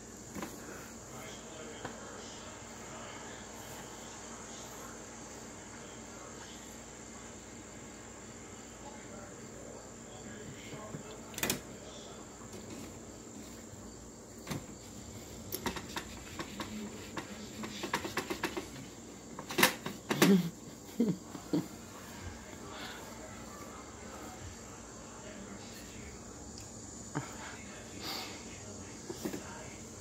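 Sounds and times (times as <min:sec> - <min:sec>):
cat bumping plastic machine: 0:15.6 - 0:18.8.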